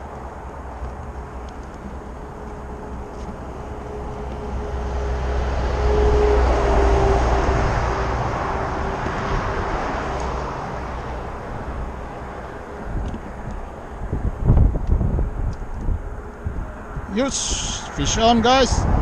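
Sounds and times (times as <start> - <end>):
vehicle passing by: 2.1 - 13.0.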